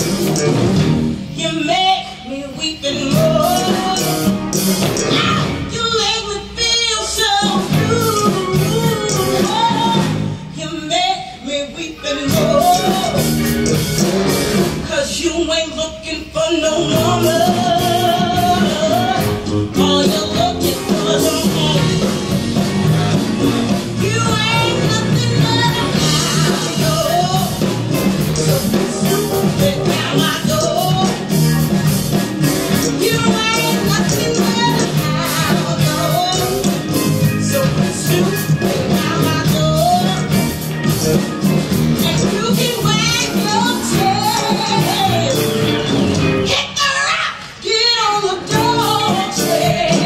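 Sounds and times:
live rock and roll band: 0.0s - 50.0s
person singing: 1.4s - 13.8s, 14.8s - 45.8s, 46.5s - 50.0s.

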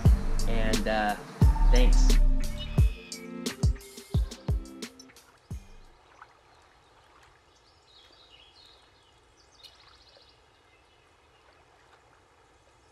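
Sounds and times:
birds chirping: 0.0s - 12.9s
bird trill: 1.2s - 3.4s
soft outdoor rush: 5.0s - 12.9s.

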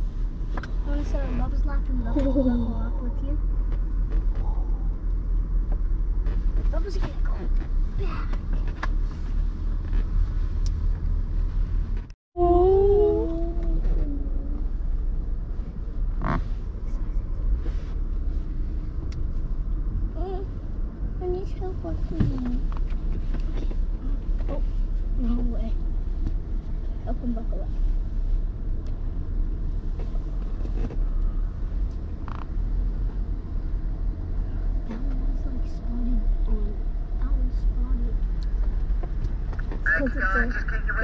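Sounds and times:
car interior rumble: 0.0s - 41.0s
creaks and clicks: 16.1s - 16.5s, 30.0s - 33.2s.

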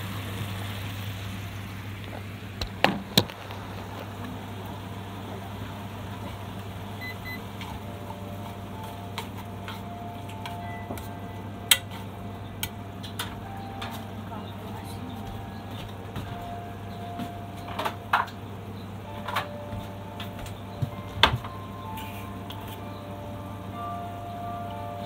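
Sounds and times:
food simmering in a pan: 0.0s - 9.5s.

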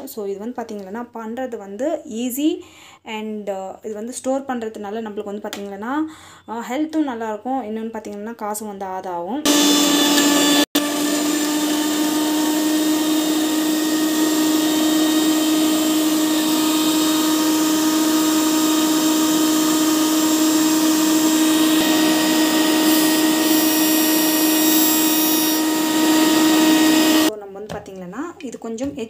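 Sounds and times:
mixer grinder motor whining: 9.5s - 27.3s.

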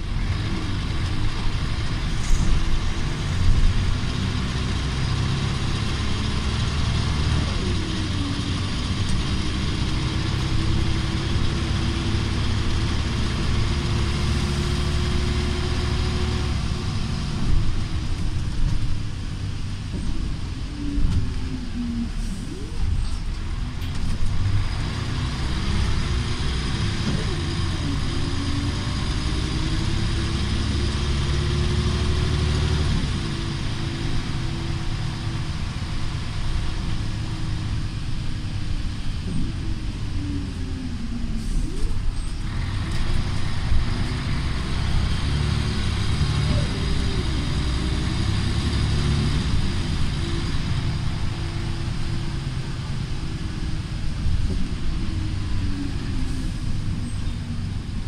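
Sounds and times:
bus engine with gear changes: 0.0s - 58.0s
road noise: 0.0s - 58.0s.

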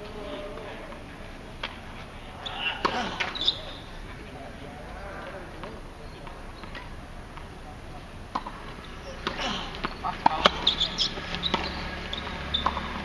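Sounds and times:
tennis balls struck by rackets: 0.0s - 13.0s
balls bouncing on hard court: 8.3s - 13.0s.

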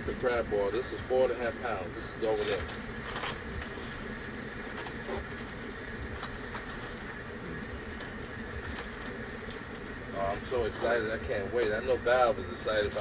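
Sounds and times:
gas burner rumbling: 0.0s - 13.0s
plastic bag rustling: 2.2s - 3.8s.

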